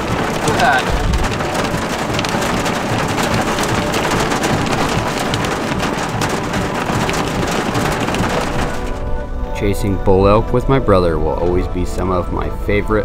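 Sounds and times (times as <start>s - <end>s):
heavy rain falling: 0.0s - 13.0s
raindrops ticking near microphone: 0.0s - 13.0s.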